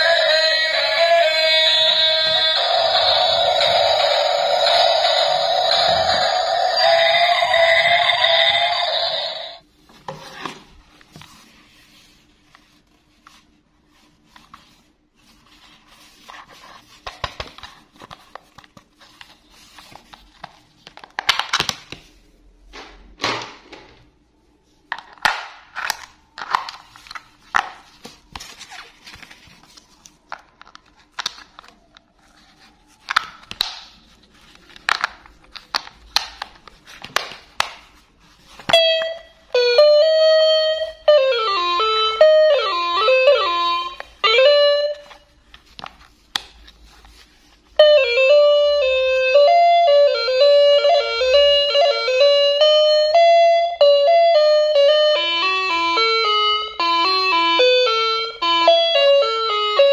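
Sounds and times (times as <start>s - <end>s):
electronic toy tune: 0.0s - 9.6s, 38.7s - 45.2s, 47.8s - 59.9s.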